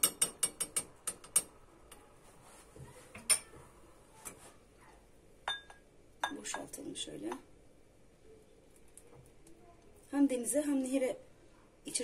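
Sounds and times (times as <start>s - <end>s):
metal spoon clinking in a pot: 0.0s - 1.5s, 5.5s - 6.7s.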